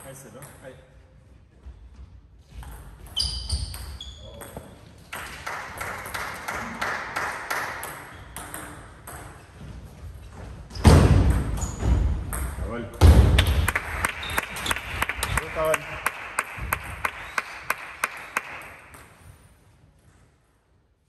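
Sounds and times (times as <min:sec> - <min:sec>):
loud thump: 0:10.8 - 0:12.2, 0:13.0 - 0:13.6.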